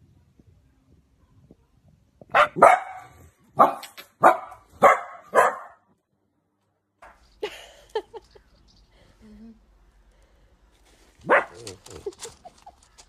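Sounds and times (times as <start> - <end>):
puppy barking: 2.3 - 5.9, 11.2 - 11.8.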